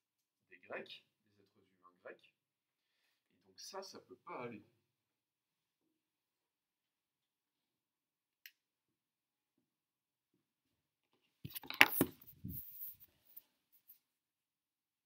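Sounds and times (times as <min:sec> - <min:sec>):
camera handling knocks and rubs: 0:11.5 - 0:12.8.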